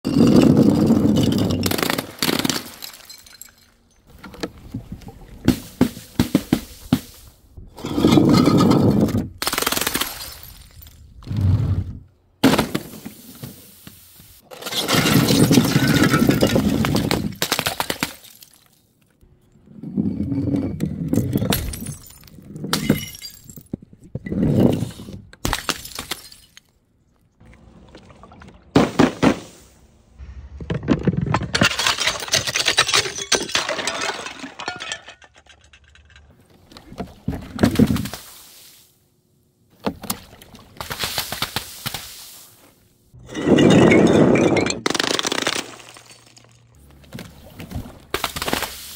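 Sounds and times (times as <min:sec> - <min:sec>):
glass jars smashing: 0:00.1 - 0:04.1, 0:14.5 - 0:17.1, 0:21.2 - 0:23.7, 0:25.5 - 0:26.7, 0:31.1 - 0:36.2, 0:43.2 - 0:46.7
paint balloons bursting and splattering: 0:09.4 - 0:10.5, 0:48.1 - 0:48.9.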